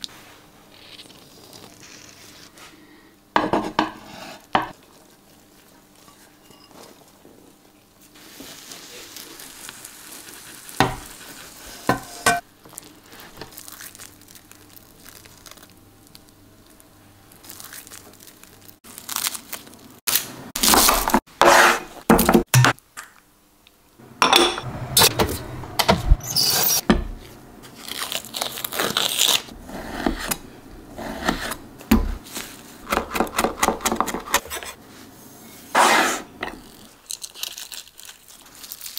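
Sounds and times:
garlic skin crackling: 0:12.7 - 0:16.8, 0:17.4 - 0:21.2, 0:27.7 - 0:29.6, 0:36.6 - 0:38.9.

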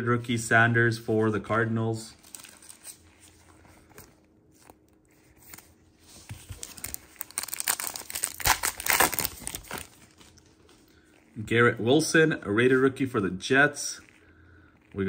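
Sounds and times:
plastic wrapper tearing and crinkling: 0:02.2 - 0:03.3, 0:06.4 - 0:10.6.

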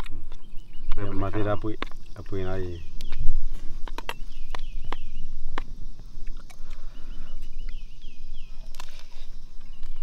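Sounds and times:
bird whistling calls: 0:04.1 - 0:05.4, 0:06.7 - 0:10.0.

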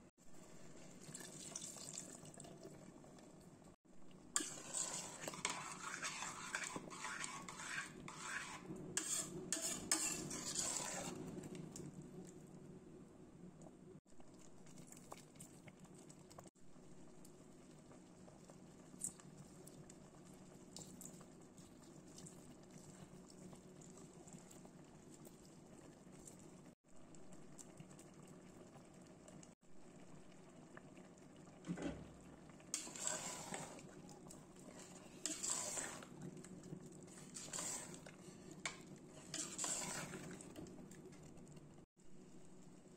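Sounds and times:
curry bubbling in pot: 0:00.4 - 0:12.7, 0:13.5 - 0:42.9
metal spoon stirring thick curry: 0:04.4 - 0:11.2, 0:32.8 - 0:36.2, 0:37.1 - 0:40.6.

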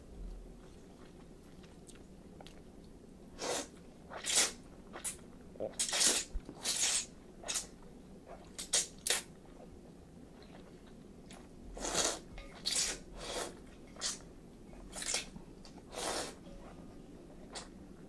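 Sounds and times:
chewing: 0:00.6 - 0:03.0, 0:10.3 - 0:16.3
noodles slurped: 0:11.8 - 0:14.2.

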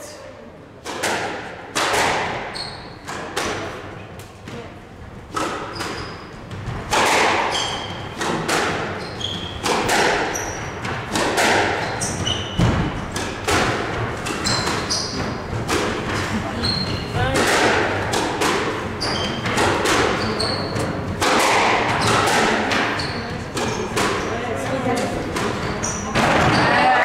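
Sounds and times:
squash ball hits echoing: 0:00.8 - 0:03.9, 0:05.3 - 0:27.0
shoes squeaking on wooden floor: 0:02.5 - 0:03.1, 0:08.9 - 0:09.6, 0:11.8 - 0:13.0, 0:14.3 - 0:15.6, 0:16.2 - 0:17.2, 0:19.0 - 0:21.0, 0:22.9 - 0:24.4.

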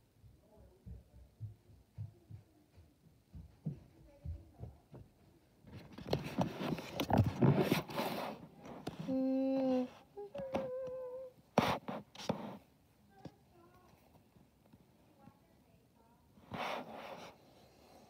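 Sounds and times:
rustling on fleece blanket: 0:06.1 - 0:09.9, 0:16.4 - 0:18.0.

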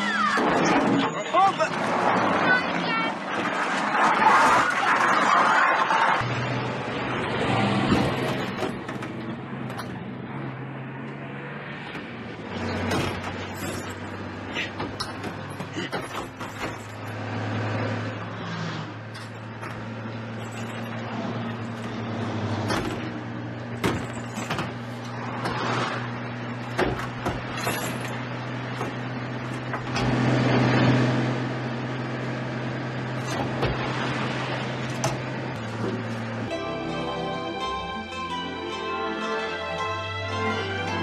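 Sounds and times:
truck engine running: 0:00.0 - 0:41.0
knocks and clatters: 0:07.8 - 0:10.1, 0:11.9 - 0:17.4, 0:19.0 - 0:25.8, 0:26.6 - 0:30.4.

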